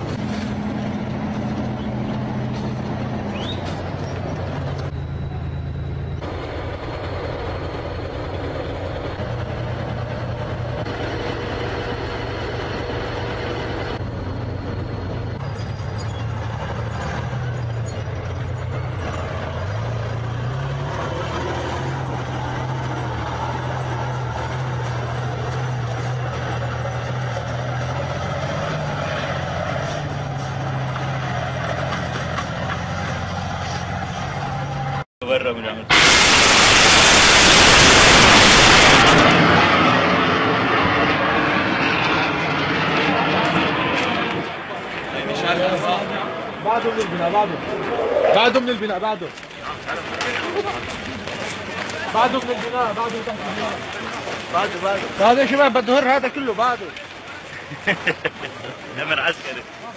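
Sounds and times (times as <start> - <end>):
diesel engine revving: 0.0 - 35.1, 35.9 - 42.0.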